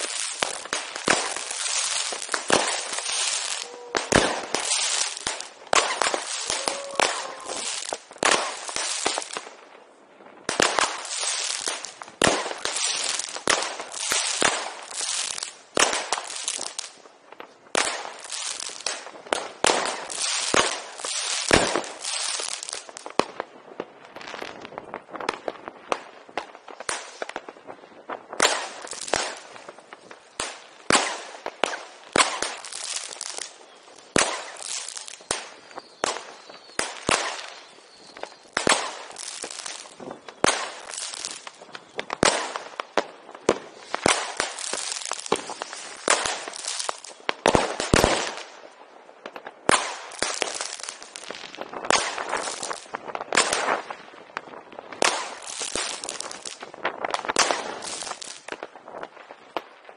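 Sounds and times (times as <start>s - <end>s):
loud firework bangs: 0.0s - 9.5s, 30.4s - 33.5s, 38.5s - 48.5s
firecrackers crackling: 0.0s - 59.9s.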